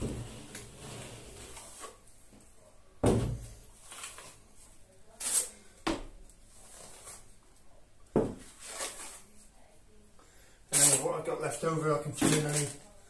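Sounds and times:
trowel scraping plaster: 0:00.0 - 0:02.0, 0:05.2 - 0:05.6, 0:08.4 - 0:09.2, 0:10.7 - 0:11.0.

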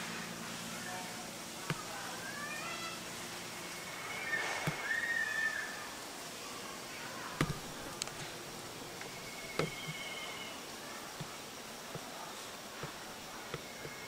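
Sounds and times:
high whistled animal calls: 0:03.6 - 0:06.0, 0:09.0 - 0:10.6.

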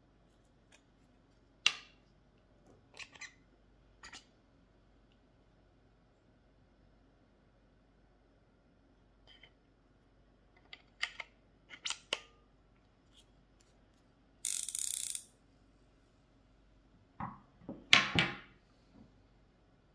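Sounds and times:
fishing reel clicks: 0:14.4 - 0:15.3.

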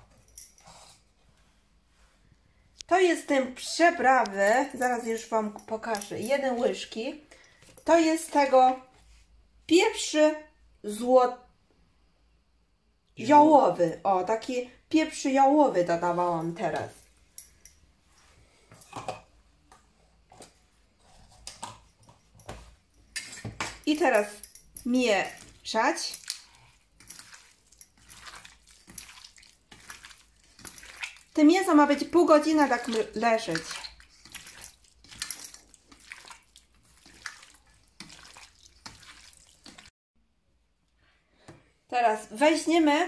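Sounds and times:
hand squishing wet meat: 0:24.9 - 0:39.9.

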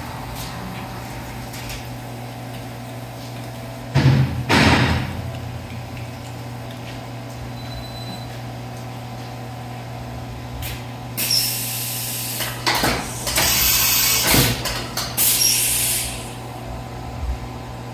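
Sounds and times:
machine low hum: 0:00.0 - 0:11.2
loud hissing bursts: 0:13.0 - 0:14.6, 0:15.2 - 0:16.4.

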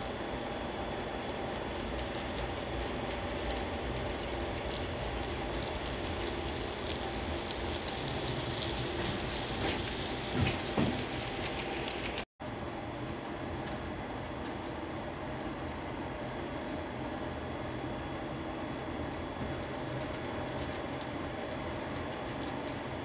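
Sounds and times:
model train running: 0:01.2 - 0:12.2.

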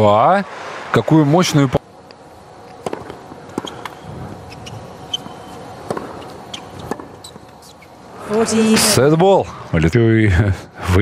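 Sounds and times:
rackets striking tennis ball: 0:02.7 - 0:07.9
tennis ball bouncing: 0:02.8 - 0:07.8.

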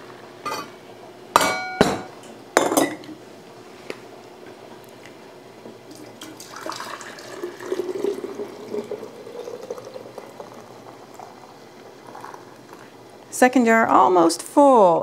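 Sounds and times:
liquid pouring into a jar: 0:05.9 - 0:12.9.

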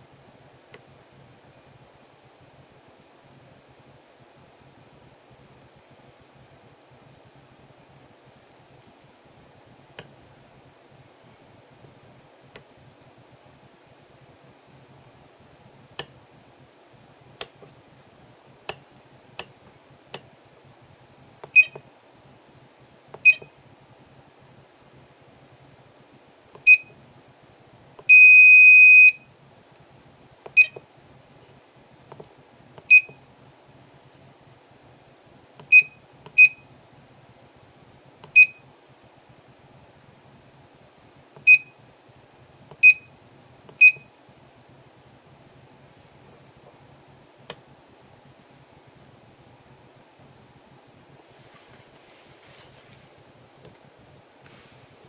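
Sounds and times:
long steady beep: 0:21.5 - 0:21.8, 0:23.2 - 0:23.5, 0:26.7 - 0:26.9, 0:28.1 - 0:29.3, 0:30.6 - 0:30.8, 0:32.9 - 0:33.2, 0:35.7 - 0:36.7, 0:38.4 - 0:38.6, 0:41.5 - 0:41.8, 0:42.8 - 0:43.1, 0:43.8 - 0:44.1.

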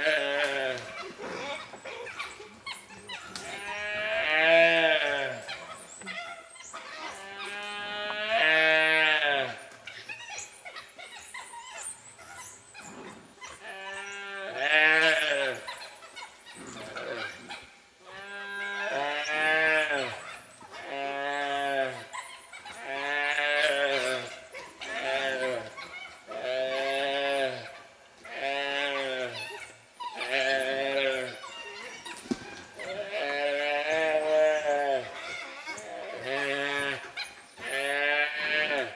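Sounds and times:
calf bawling in distress: 0:12.8 - 0:38.9.

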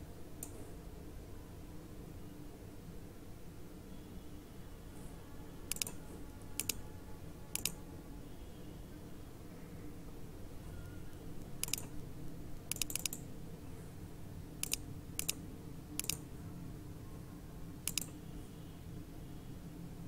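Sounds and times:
low hum of computer: 0:00.0 - 0:20.0
computer mouse clicking: 0:00.4 - 0:00.6, 0:05.7 - 0:06.8, 0:07.6 - 0:07.8, 0:11.5 - 0:11.9, 0:12.7 - 0:13.3, 0:14.6 - 0:15.4, 0:16.0 - 0:16.2, 0:17.8 - 0:18.2.

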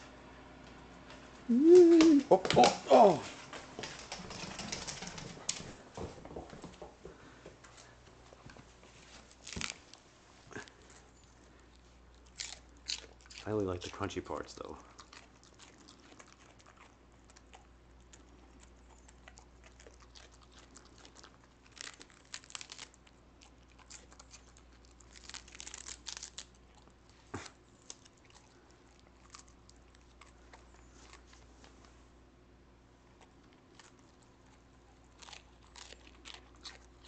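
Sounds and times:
dog crunching lettuce: 0:08.9 - 0:31.8, 0:33.0 - 0:37.0.

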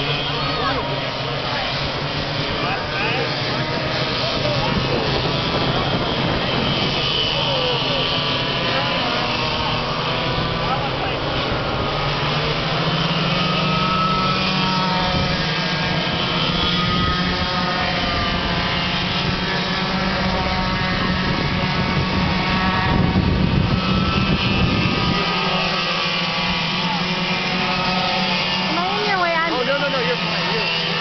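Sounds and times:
go-kart engines racing: 0:00.0 - 0:31.0.

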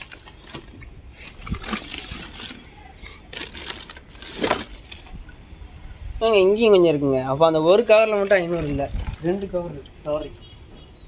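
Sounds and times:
water sloshing in plastic bag: 0:00.0 - 0:05.4, 0:08.0 - 0:09.6
plastic bag crinkling: 0:01.4 - 0:05.3.

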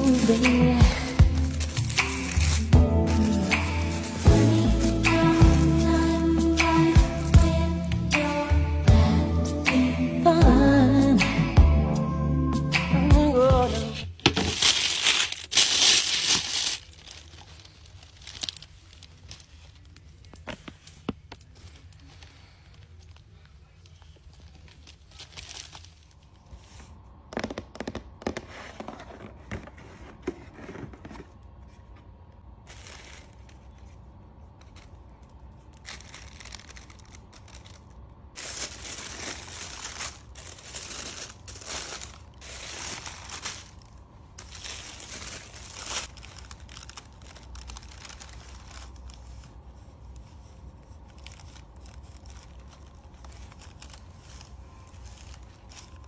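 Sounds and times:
tissue paper and cloth rustling: 0:00.0 - 0:07.6, 0:13.5 - 0:27.1, 0:32.6 - 0:56.0.

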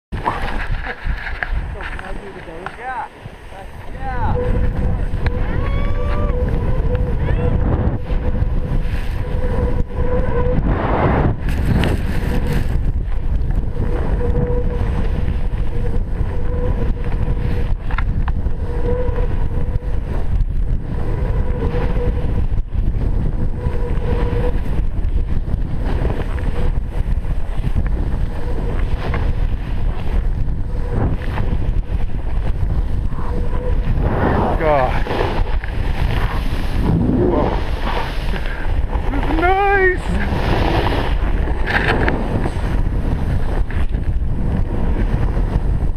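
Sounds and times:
wind buffeting microphone: 0:00.1 - 0:45.9
snowboard hissing through snow: 0:34.0 - 0:41.4.

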